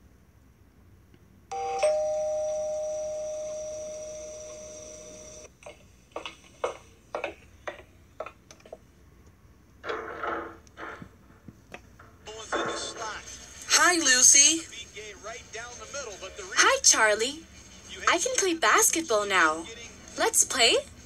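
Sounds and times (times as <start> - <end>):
light irregular taps: 5.6 - 9.4.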